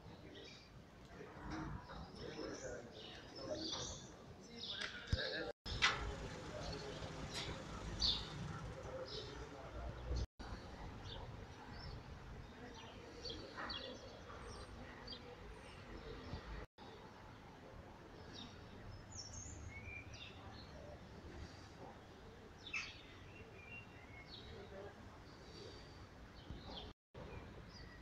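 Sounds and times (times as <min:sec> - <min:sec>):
small birds chirping: 0:01.9 - 0:17.0.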